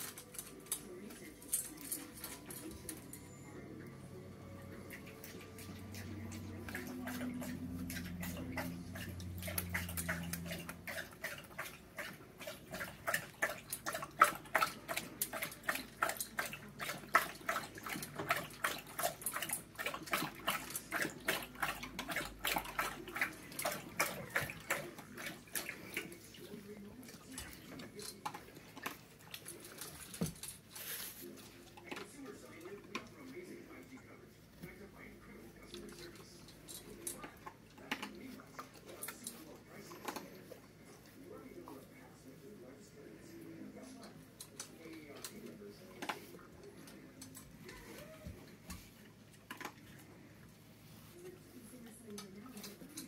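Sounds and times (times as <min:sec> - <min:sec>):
dog crunching food: 0:00.0 - 0:03.2, 0:04.6 - 0:40.9, 0:48.4 - 0:50.2
food clattering against bowl: 0:05.0 - 0:26.2.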